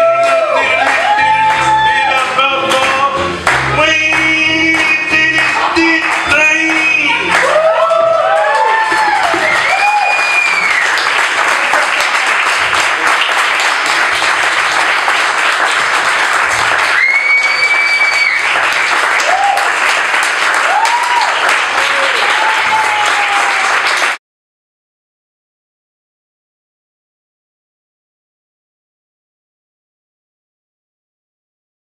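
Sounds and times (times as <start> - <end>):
audience applauding: 0.0 - 24.2
long whistle: 9.3 - 10.9, 16.9 - 18.5
short whoops: 16.9 - 18.5, 19.2 - 19.7, 20.6 - 23.8.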